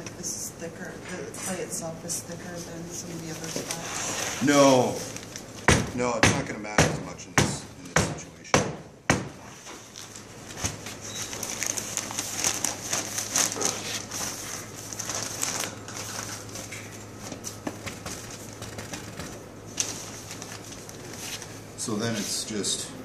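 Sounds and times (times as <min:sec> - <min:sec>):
newspaper rustling and crinkling: 0:03.0 - 0:05.7, 0:09.8 - 0:22.4.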